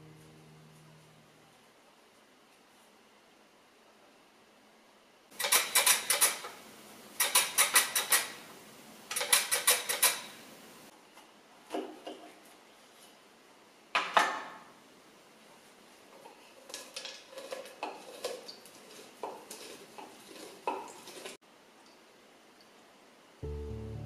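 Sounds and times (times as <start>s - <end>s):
lemon scraping on slicer blade: 16.7s - 21.4s.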